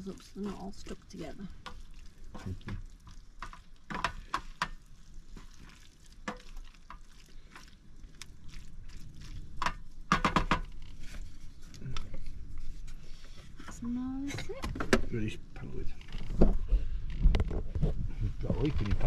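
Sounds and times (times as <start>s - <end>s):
utensil knocking against pan: 10.1s - 10.7s.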